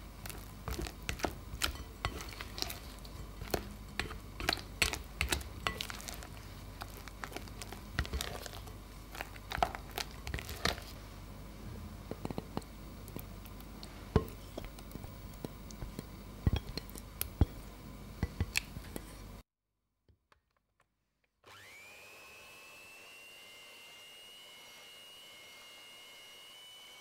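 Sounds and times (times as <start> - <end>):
spatula knocking glass bowl: 0.7 - 6.3, 14.2 - 18.8
electric hand mixer whining: 21.5 - 27.0.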